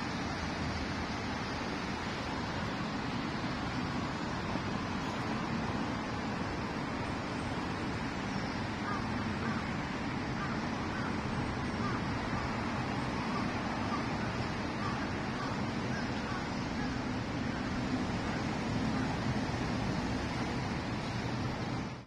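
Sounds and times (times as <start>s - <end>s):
outdoor background hiss: 0.0s - 22.0s.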